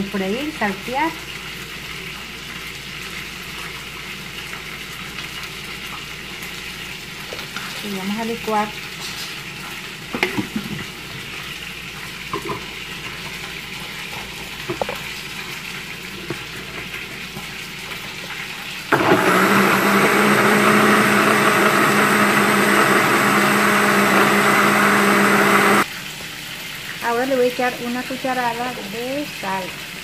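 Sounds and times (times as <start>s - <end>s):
food frying sizzle: 0.0s - 19.0s
blender motor humming: 18.9s - 25.9s.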